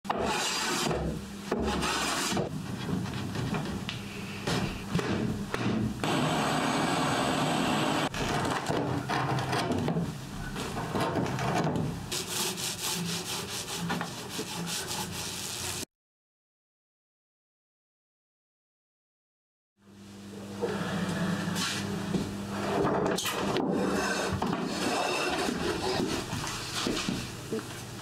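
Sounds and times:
hand tools rubbing and sawing wood: 0.1 - 5.0, 10.4 - 15.9, 23.4 - 27.4.

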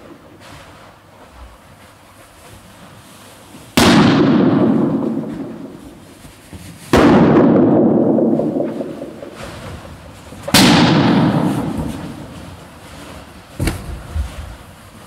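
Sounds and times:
balloon popping with echo: 3.8 - 6.1, 6.9 - 12.4.

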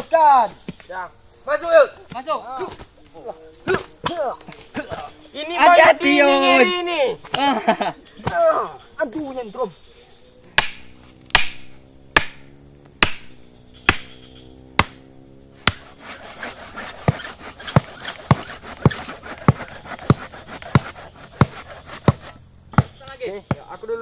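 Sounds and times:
hammer blows on wood: 10.4 - 14.2, 14.8 - 15.0, 15.6 - 23.7.

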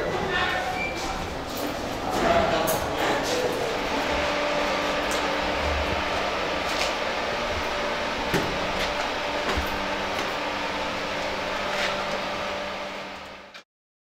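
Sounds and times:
steady machinery hum: 0.0 - 13.6
footsteps: 1.0 - 10.4.

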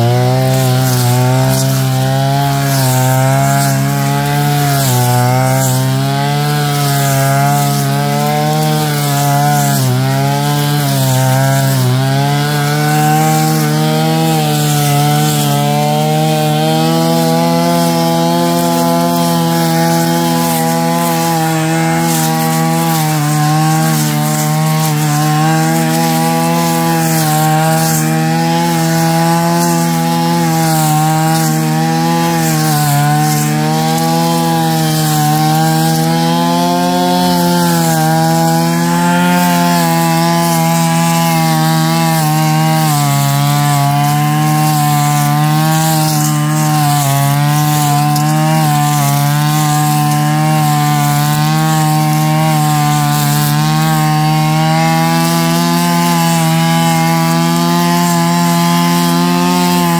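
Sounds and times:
brush cutter running: 0.0 - 59.9.

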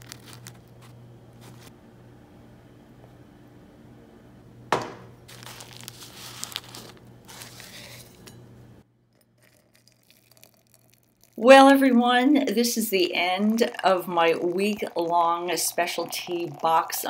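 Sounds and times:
paper tea bag crinkling: 0.0 - 1.7, 5.3 - 8.3
low steady hum: 0.0 - 17.0.

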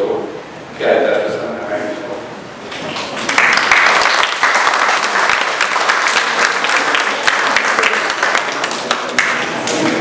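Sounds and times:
audience applause: 2.7 - 10.0.

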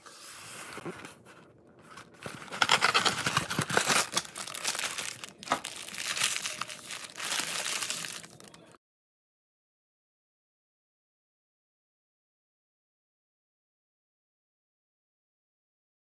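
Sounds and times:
plastic bag crinkling: 1.9 - 8.8.

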